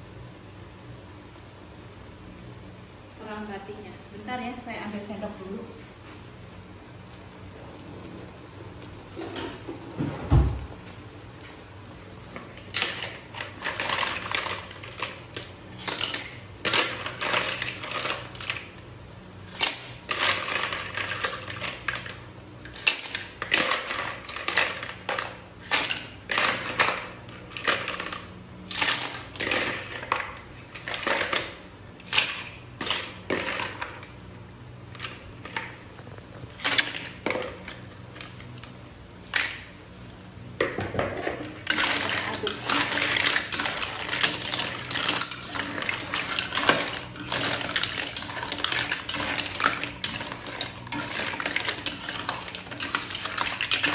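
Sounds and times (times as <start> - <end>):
clam shells clattering in a wok: 12.5 - 18.8, 19.4 - 34.2, 36.5 - 38.4, 39.2 - 39.8, 40.6 - 53.9.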